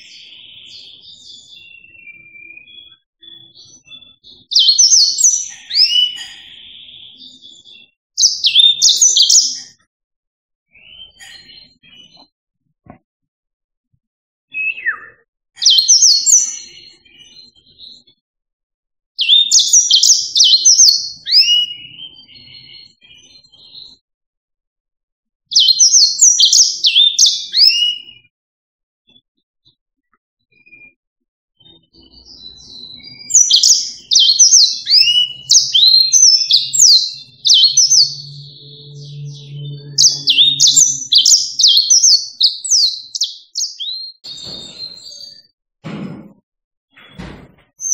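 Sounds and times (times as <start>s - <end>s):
canary singing: 0.0s - 9.8s, 14.5s - 18.1s, 19.2s - 24.0s, 25.5s - 28.3s, 31.6s - 45.5s.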